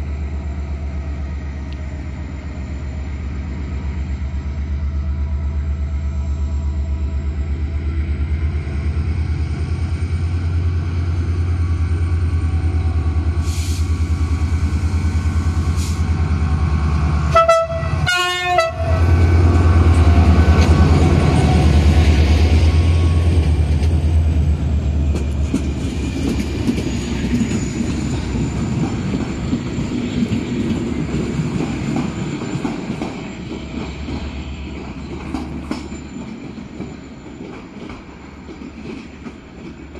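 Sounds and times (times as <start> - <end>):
locomotive engine drone: 0.0 - 37.1
train coaches clickety-clack: 6.9 - 39.9
train horn blasts: 17.3 - 19.4.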